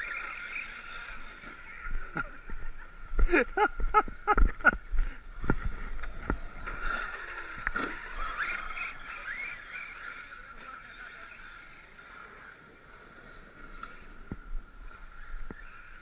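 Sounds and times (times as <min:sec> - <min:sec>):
rc car running: 0:00.0 - 0:16.0
rc car knocks and thumps: 0:05.4 - 0:10.8.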